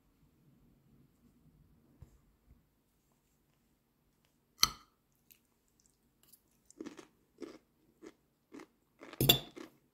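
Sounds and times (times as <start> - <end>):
person chewing: 5.1 - 9.8.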